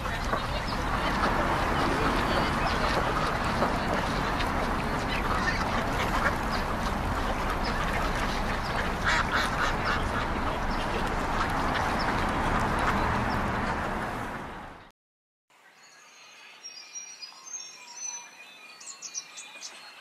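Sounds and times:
waterfowl calling: 0.0 - 14.2.

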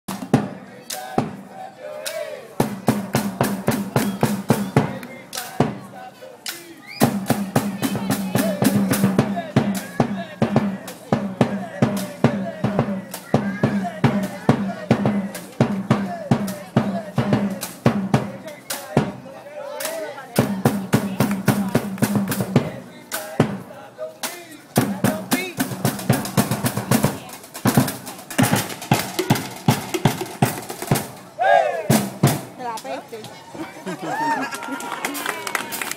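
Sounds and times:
sticks drumming on buckets: 24.8 - 31.2.

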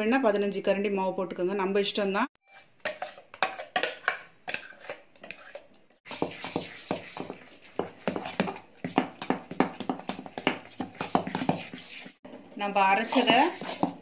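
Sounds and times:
hand squishing wet batter: 4.6 - 12.2
spoon scraping steel jar: 12.9 - 14.0.

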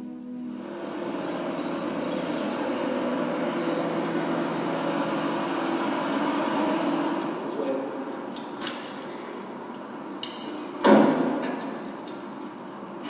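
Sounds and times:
music: 0.0 - 0.6
engine low hum: 0.0 - 13.0.

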